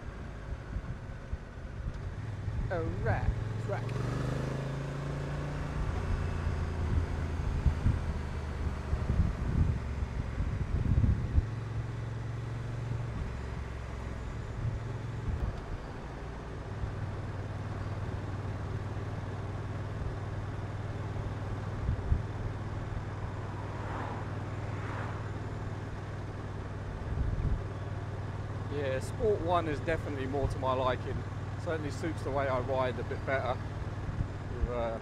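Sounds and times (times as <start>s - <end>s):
motorcycle engine running: 0.0s - 35.0s
rush of wind noise: 6.8s - 11.5s.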